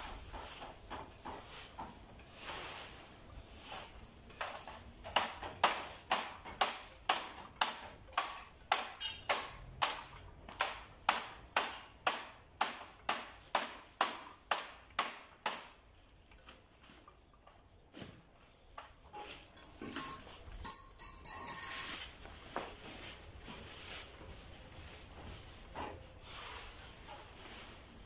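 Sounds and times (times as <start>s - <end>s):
broom sweeping dry leaves: 0.0s - 5.0s, 5.7s - 7.0s, 21.7s - 28.0s
leaves rustling: 21.8s - 28.0s.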